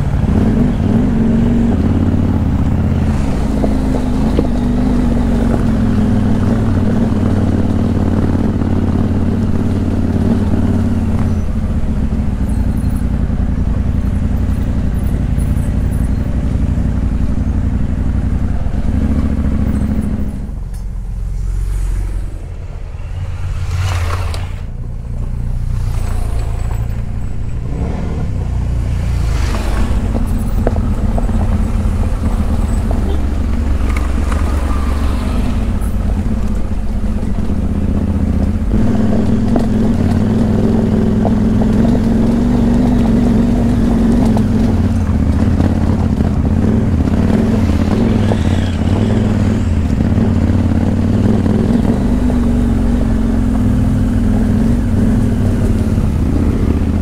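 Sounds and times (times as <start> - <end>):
motorcycle engine running: 0.0 - 21.5, 24.8 - 57.0.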